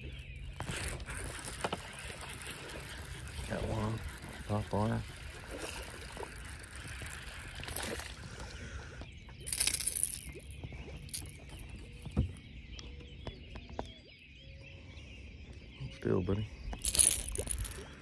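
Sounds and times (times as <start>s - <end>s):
water splashing: 0.6s - 8.8s.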